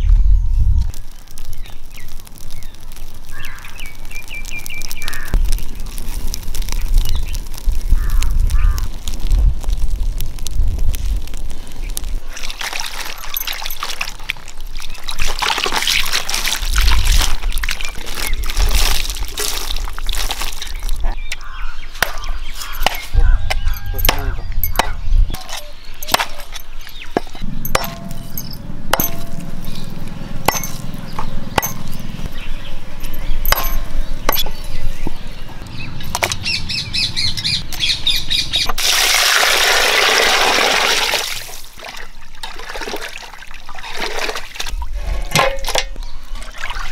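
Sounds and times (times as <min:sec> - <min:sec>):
cleaver chopping on wooden block: 0:22.0 - 0:26.5, 0:31.6 - 0:31.9, 0:33.5 - 0:34.6
water poured over chicken: 0:38.8 - 0:44.6
water pouring into steel pot: 0:38.8 - 0:46.9.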